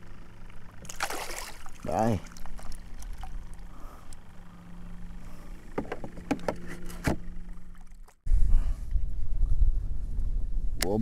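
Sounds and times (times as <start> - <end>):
faint steady hum: 0.0 - 11.0
wind rumble on microphone: 8.3 - 11.0.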